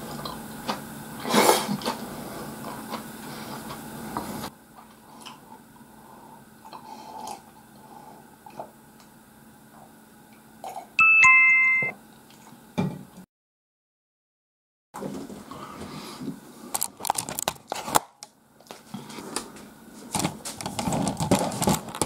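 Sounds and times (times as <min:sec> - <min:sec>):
two-note electronic chime: 0:11.0 - 0:12.0.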